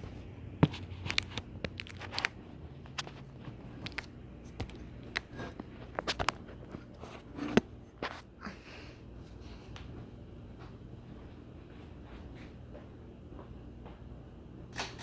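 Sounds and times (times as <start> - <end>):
ceiling fan motor hum: 0.0 - 15.0.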